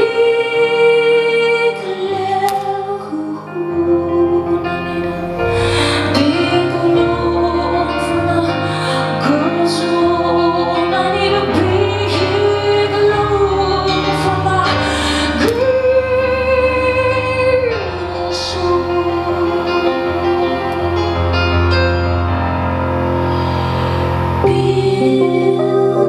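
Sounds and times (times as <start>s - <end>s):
woman singing live: 0.0s - 22.0s, 24.4s - 26.0s
keyboard accompaniment: 0.0s - 26.0s.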